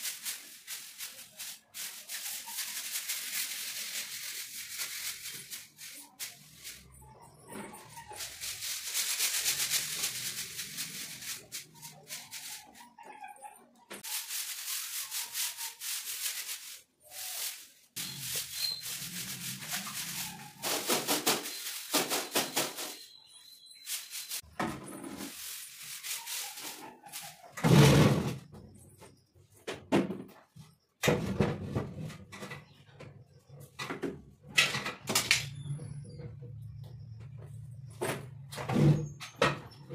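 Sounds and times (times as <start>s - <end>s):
broom brushing tiles: 0.0s - 27.7s.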